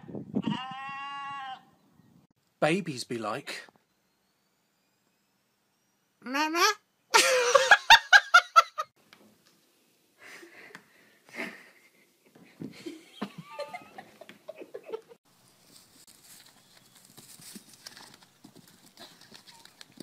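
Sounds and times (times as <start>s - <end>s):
person belly laughing: 7.2s - 8.9s, 12.6s - 15.2s.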